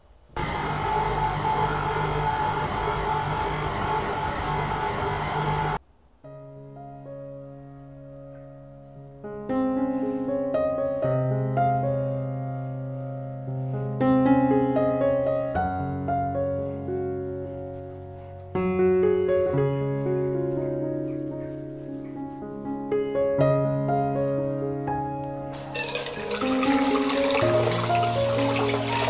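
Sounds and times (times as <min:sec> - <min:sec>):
slow piano music: 0:05.8 - 0:29.0.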